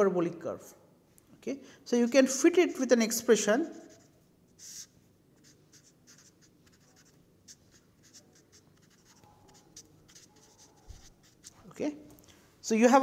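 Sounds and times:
marker scratching on paper: 2.0s - 2.5s, 3.6s - 11.8s.

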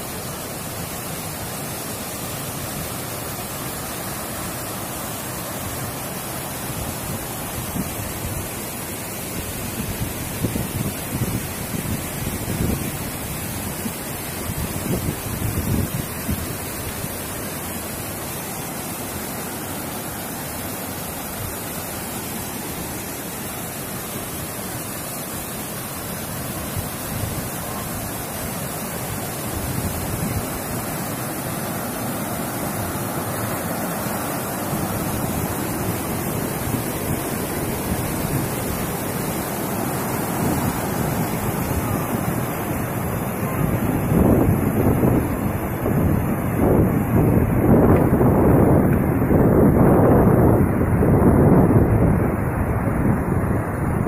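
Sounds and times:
waterfall rushing: 0.0s - 54.0s
whitewater stream: 0.0s - 54.0s
wind buffeting microphone: 13.8s - 16.8s, 34.4s - 54.0s.

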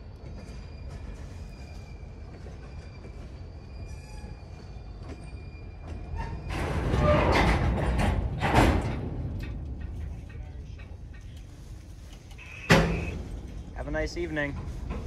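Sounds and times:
train wheels rumbling on rails: 0.0s - 15.0s
faint wheel squealing: 12.3s - 13.2s.

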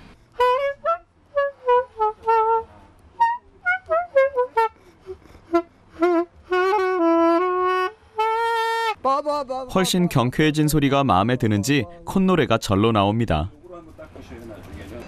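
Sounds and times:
saxophone notes: 0.4s - 9.0s.

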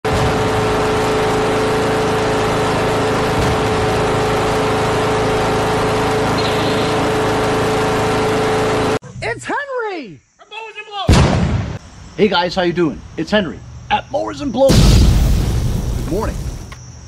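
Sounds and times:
garden tractor engine running: 0.0s - 9.0s.

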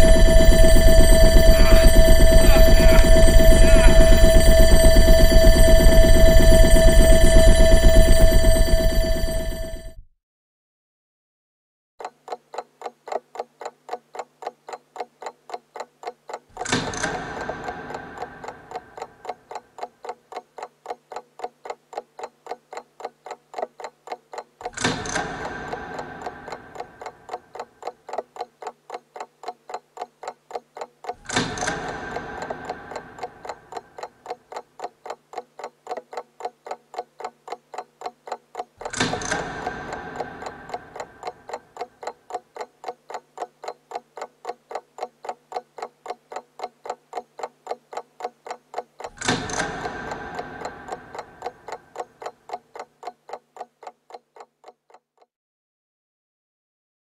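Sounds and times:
low steady hum: 0.0s - 9.9s
resonant clock strike: 0.0s - 9.9s, 16.6s - 19.8s, 23.8s - 28.2s, 31.2s - 36.2s, 37.2s - 43.8s, 49.0s - 52.9s
clock ticking quickly: 0.0s - 10.0s, 12.0s - 55.3s.

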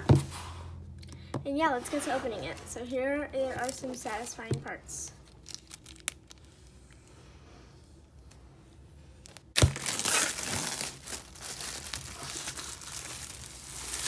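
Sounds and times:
plastic shrink wrap tearing and crinkling: 3.5s - 4.4s, 5.2s - 6.8s, 9.2s - 14.0s.

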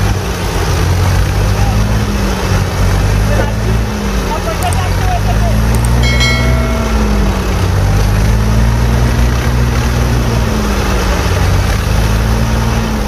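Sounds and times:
tractor diesel engine under load: 0.0s - 13.0s.

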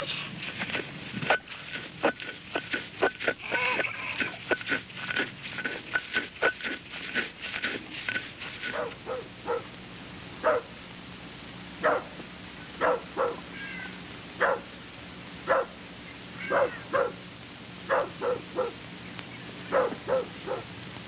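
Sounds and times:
steady low hum: 0.0s - 21.0s
dog barking: 8.7s - 9.7s, 10.4s - 10.7s, 11.8s - 12.2s, 12.8s - 13.4s, 14.4s - 14.7s, 15.5s - 15.8s, 16.5s - 17.2s, 17.9s - 18.8s, 19.7s - 20.7s.

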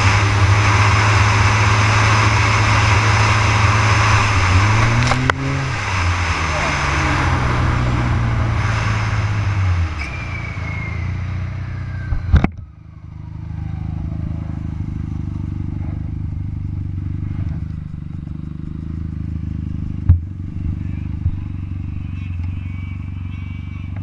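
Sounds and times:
snowmobile engine whine: 0.0s - 24.0s.

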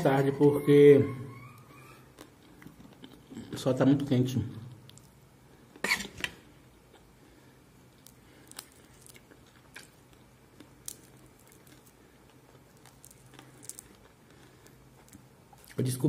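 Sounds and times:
low steady hum: 0.0s - 16.0s
man chewing crispy food: 7.9s - 15.9s.

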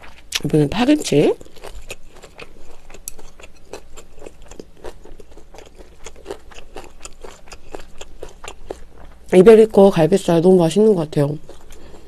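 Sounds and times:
chewing with wet clicks: 0.0s - 0.5s, 1.2s - 9.4s, 11.2s - 12.0s.

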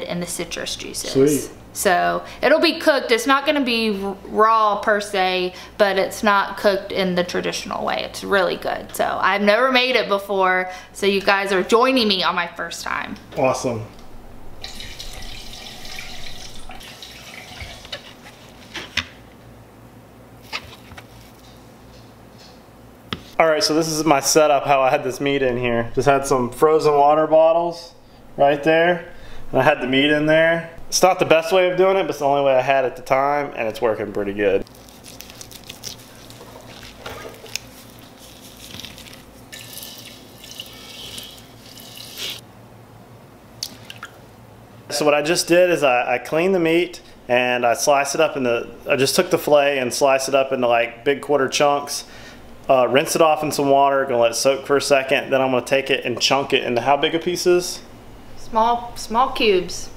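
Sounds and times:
faucet running into sink: 14.6s - 18.0s, 39.5s - 42.4s.

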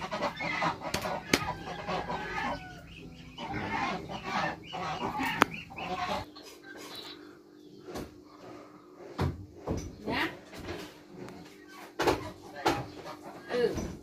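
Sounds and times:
chickens clucking: 0.0s - 14.0s.

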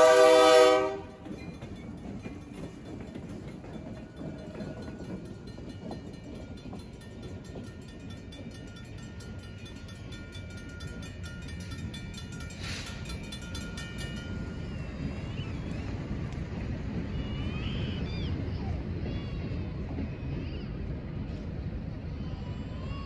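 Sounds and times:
railroad crossing bell ringing: 0.0s - 15.4s
locomotive rumble: 0.0s - 23.0s.

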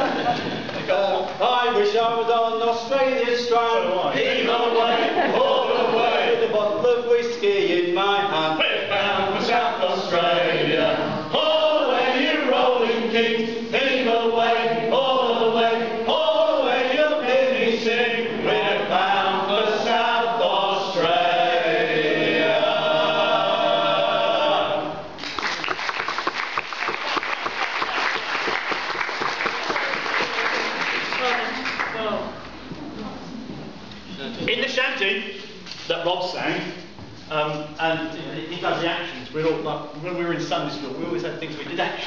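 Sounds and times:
men singing together: 3.1s - 25.0s
applause: 25.2s - 32.0s.

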